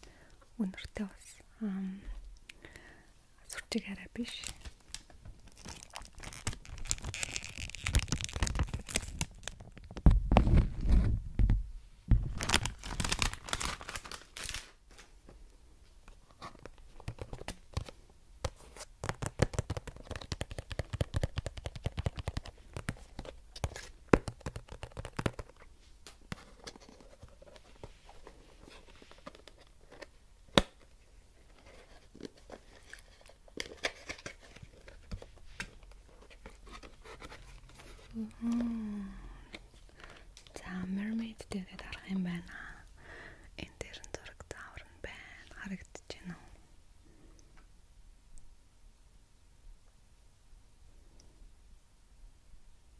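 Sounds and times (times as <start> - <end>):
cellophane crinkling: 4.2 - 10.7, 12.3 - 15.1
fingers tapping cardboard box: 19.0 - 23.0, 24.1 - 25.5.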